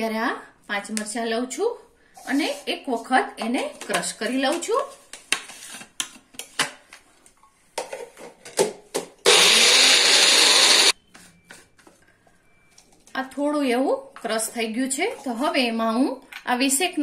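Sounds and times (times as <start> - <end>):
mixer grinder motor: 9.2 - 11.0.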